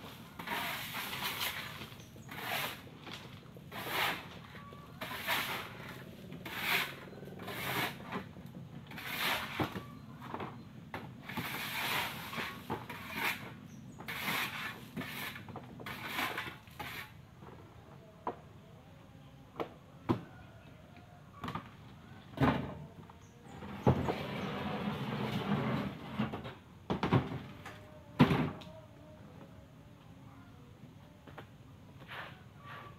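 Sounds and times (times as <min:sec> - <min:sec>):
shovels scraping gravel: 0:00.1 - 0:09.9, 0:11.2 - 0:17.2.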